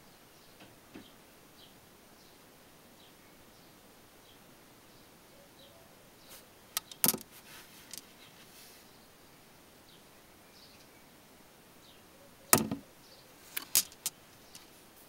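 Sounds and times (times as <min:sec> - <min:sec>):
stones clicking together: 0:06.8 - 0:07.2, 0:13.5 - 0:14.7.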